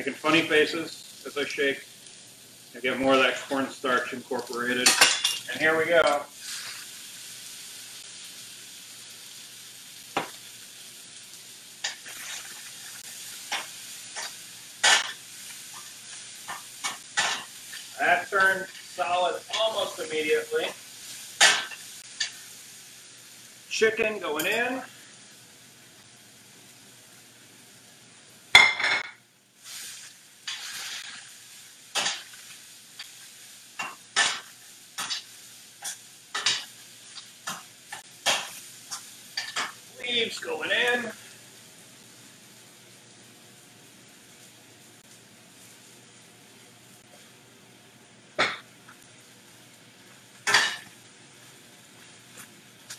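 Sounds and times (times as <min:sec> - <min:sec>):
food sizzling in skillet: 0:00.0 - 0:52.9.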